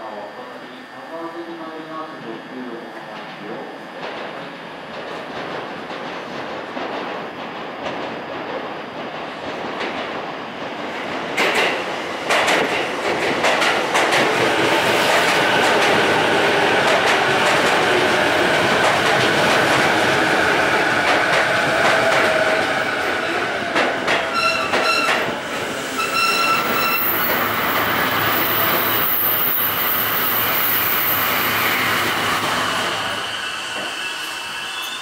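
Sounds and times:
standing train hum: 0.0 - 35.0
train running noise: 0.0 - 35.0
train brakes squealing: 24.3 - 25.3, 25.9 - 32.0, 32.6 - 35.0.

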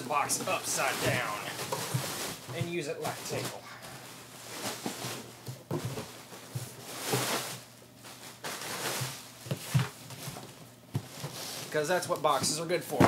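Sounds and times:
plastic bag crinkling: 0.1 - 5.3.

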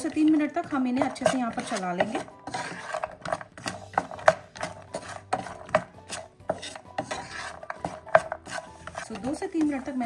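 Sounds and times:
wooden spatula scraping a pan: 0.0 - 10.0.

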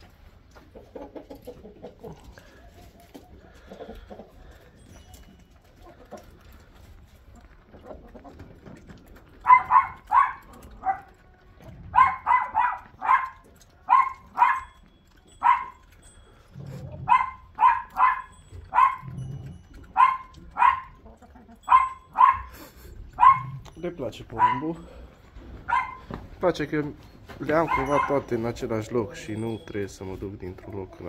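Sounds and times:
dog barking: 9.4 - 11.2, 11.8 - 15.8, 17.0 - 19.2, 19.9 - 21.0, 21.6 - 23.6, 24.3 - 24.8, 25.6 - 26.1, 27.6 - 28.3.

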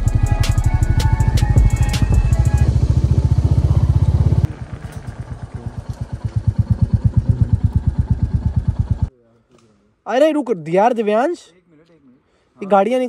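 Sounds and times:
motorcycle engine thumping: 0.0 - 9.1.

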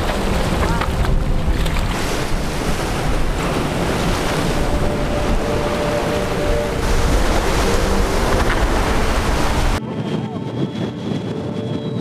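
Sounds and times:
surf breaking: 0.0 - 11.4
wind buffeting microphone: 0.0 - 12.0.

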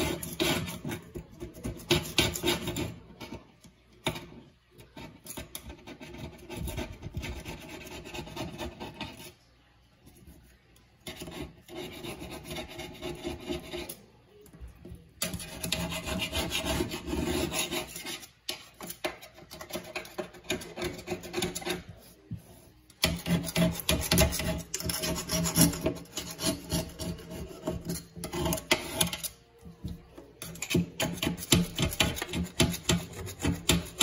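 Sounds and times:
knife blade scraping caulk: 15.2 - 21.9, 22.9 - 29.4, 30.4 - 34.0.

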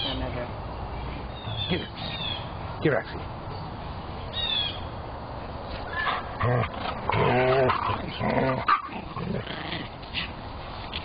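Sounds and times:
dog growling: 6.1 - 9.9.

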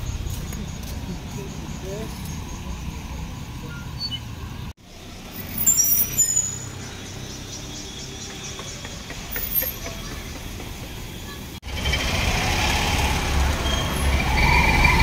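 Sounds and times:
road traffic rumble: 0.0 - 15.0
high-pitched squeals: 11.7 - 15.0.

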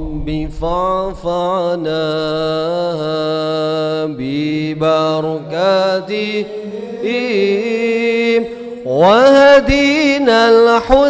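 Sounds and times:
man chanting through pa: 0.0 - 11.0.

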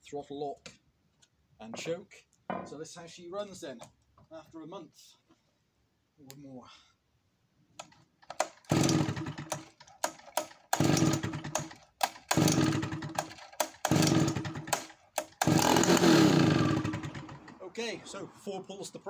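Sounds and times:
chainsaw recoil starter pulls: 7.8 - 17.8.

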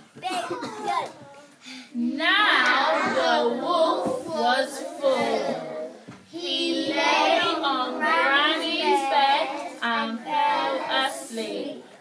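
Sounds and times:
children singing in unison: 2.4 - 11.9.

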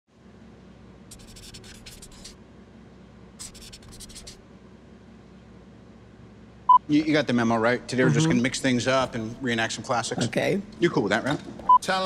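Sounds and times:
faint low hum: 0.2 - 12.0
pen scratching on paper: 1.1 - 2.4, 3.4 - 4.4.

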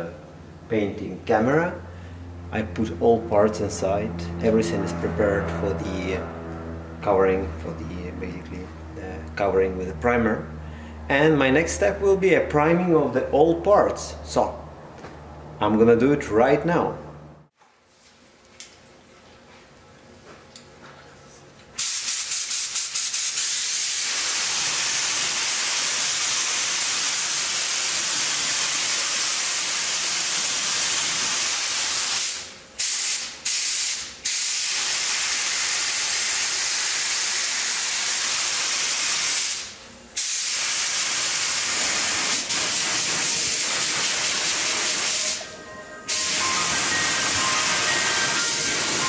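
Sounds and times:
spray gun hissing: 21.8 - 45.5, 46.1 - 49.0.

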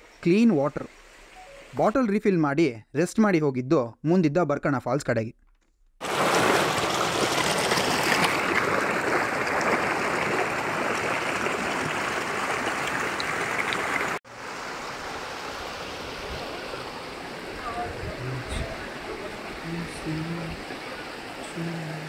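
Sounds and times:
river water rushing: 6.0 - 22.0.

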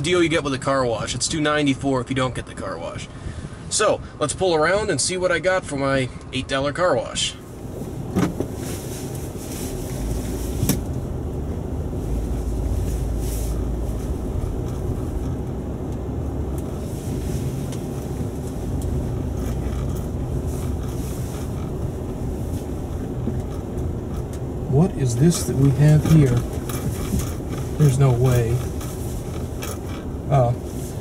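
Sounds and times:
car rumble inside cabin: 7.0 - 31.0.

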